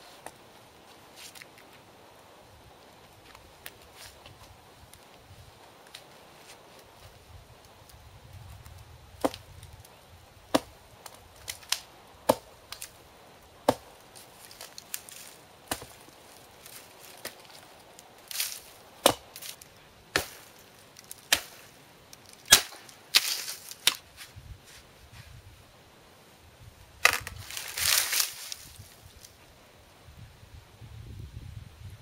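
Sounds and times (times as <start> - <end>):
hatchet chopping wood: 9.2 - 9.4, 10.5 - 10.8, 11.5 - 12.9, 13.6 - 13.9, 15.7 - 16.0, 19.0 - 19.5, 20.1 - 20.5, 21.2 - 21.6, 22.5 - 24.0.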